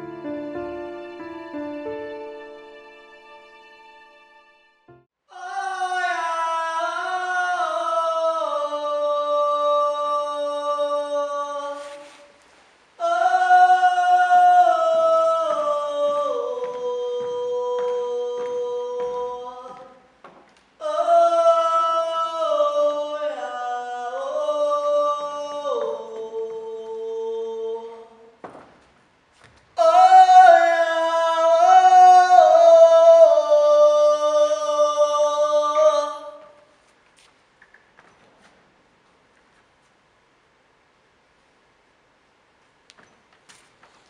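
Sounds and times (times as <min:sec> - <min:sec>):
voices singing in harmony: 0:05.3 - 0:12.2, 0:13.0 - 0:19.9, 0:20.8 - 0:28.4, 0:29.8 - 0:36.6.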